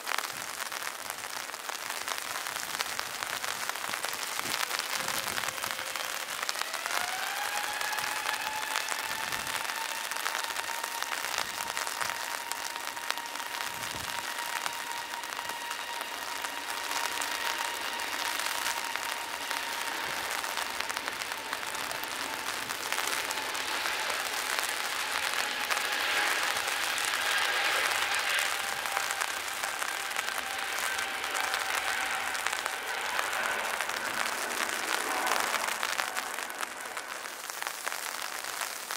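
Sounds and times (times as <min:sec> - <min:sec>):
heavy rain hissing: 0:00.0 - 0:38.9
jet engines spooling up: 0:03.0 - 0:38.2.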